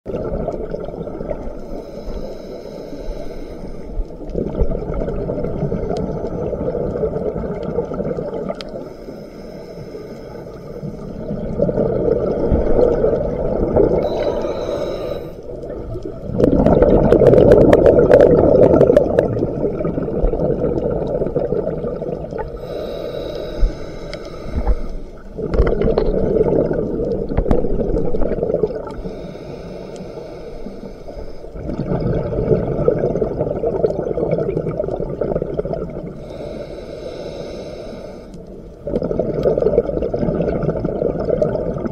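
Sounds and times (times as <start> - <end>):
diver inhaling through regulator: 1.6 - 4.1, 8.7 - 11.2, 13.9 - 15.5, 22.4 - 25.3, 28.9 - 31.7, 36.1 - 38.5
exhaust bubbles rushing: 15.7 - 22.4, 25.4 - 29.0, 31.6 - 36.1.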